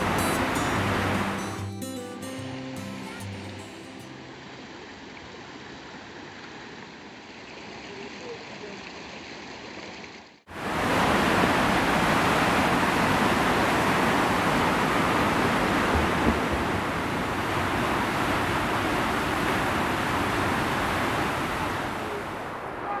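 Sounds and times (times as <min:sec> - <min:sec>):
waterfall rushing roar: 0:00.0 - 0:01.7, 0:10.5 - 0:23.0.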